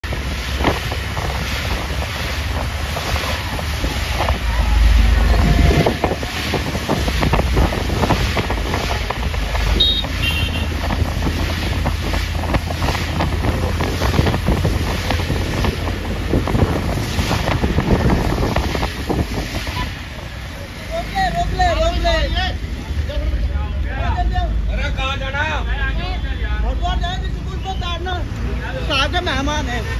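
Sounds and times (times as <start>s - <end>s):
wind buffeting microphone: 0.0s - 20.8s
road noise: 0.0s - 29.9s.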